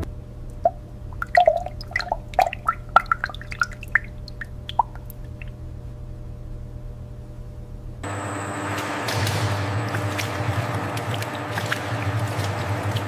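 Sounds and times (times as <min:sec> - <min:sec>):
low hum: 0:00.0 - 0:13.0
oil dripping and plopping: 0:00.5 - 0:05.6, 0:09.9 - 0:13.0.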